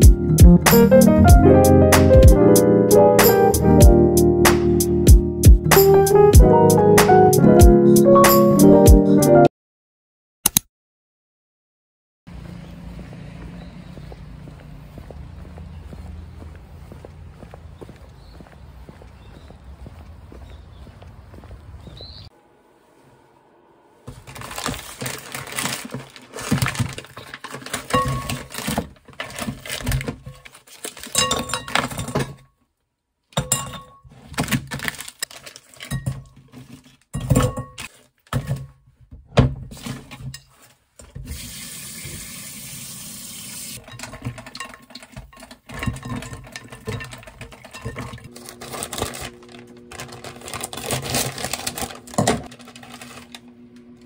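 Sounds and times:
low hum: 22.3s - 25.1s
dishes and pans clattering: 33.4s - 34.1s, 43.8s - 48.3s.

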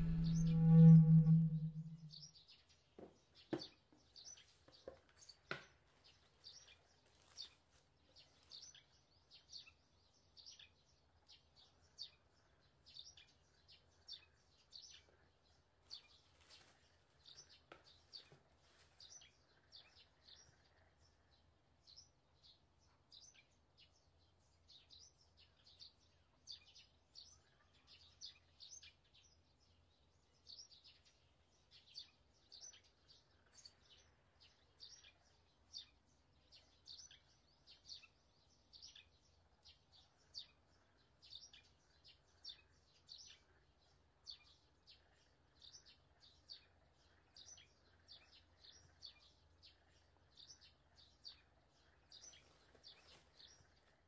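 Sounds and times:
low steady hum: 0.0s - 2.2s
small birds chirping: 0.0s - 54.0s.

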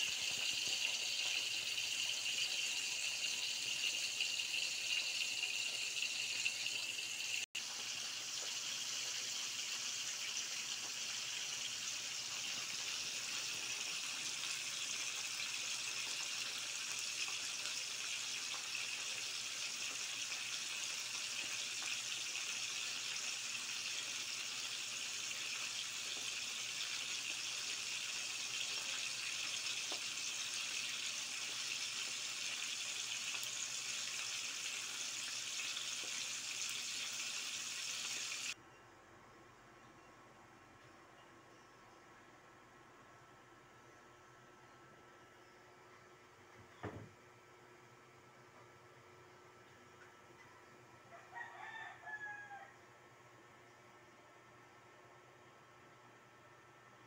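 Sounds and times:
fish sizzling in hot oil: 0.0s - 38.6s.

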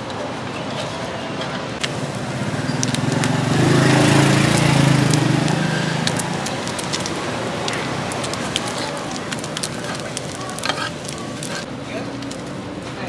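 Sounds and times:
passing engine: 1.8s - 8.6s
food deep-frying in oil: 1.8s - 12.6s.

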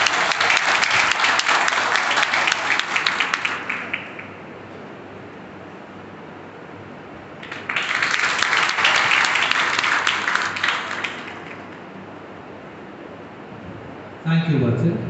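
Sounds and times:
audience applause: 0.0s - 4.5s, 7.4s - 12.0s
low room noise: 0.0s - 15.0s.

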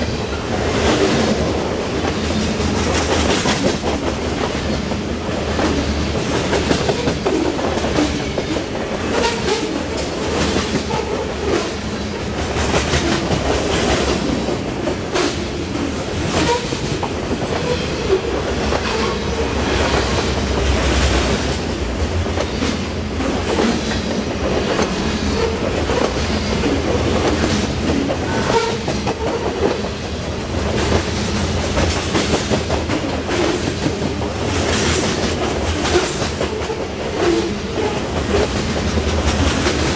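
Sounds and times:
train wheels rumbling on rail: 0.0s - 39.9s
wheels clicking over rail joints: 0.3s - 29.9s.

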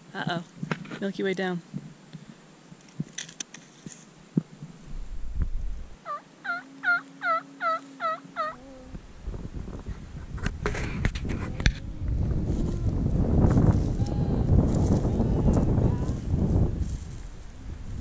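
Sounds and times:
rustling: 1.7s - 8.9s, 9.8s - 18.0s
turkey yelps: 6.0s - 8.6s.

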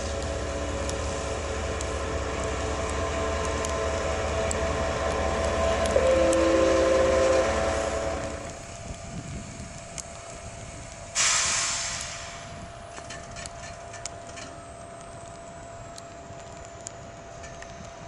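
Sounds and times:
locomotive engine thrumming: 0.0s - 9.8s
two steady tones: 1.8s - 8.6s
compressed air hiss: 11.1s - 12.6s.

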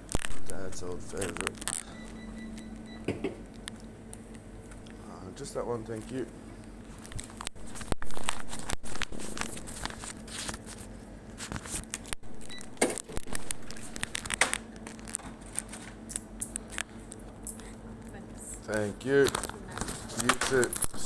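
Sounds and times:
clicks and clinks: 15.6s - 17.8s.

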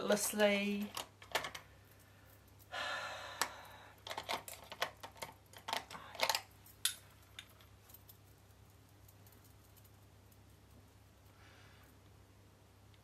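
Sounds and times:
makeup items clicking and tapping: 3.4s - 7.5s.

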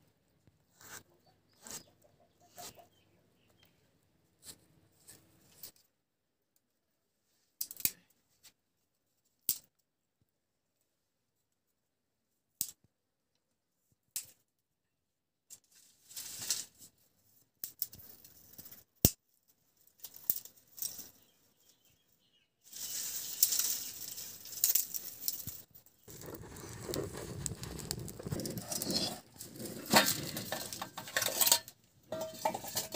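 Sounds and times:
dry twigs snapping and rustling: 7.6s - 8.0s, 19.8s - 21.2s, 22.7s - 31.0s
kindling crackling in fire: 22.6s - 32.9s.

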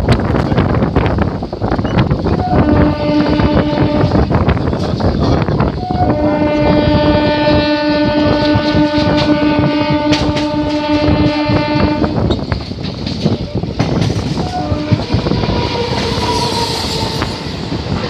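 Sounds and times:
electric train running: 0.0s - 18.0s
train horn blast: 2.4s - 4.5s, 5.8s - 12.4s, 14.4s - 17.8s.

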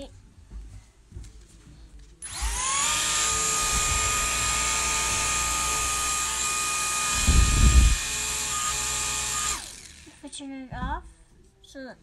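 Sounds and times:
toy motor high-pitched whine: 2.2s - 10.2s.

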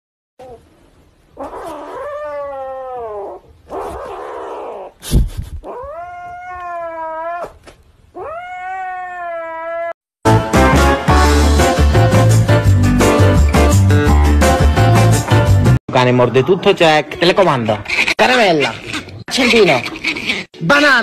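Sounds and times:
kitten yowling meows: 1.4s - 4.9s, 5.7s - 10.0s.

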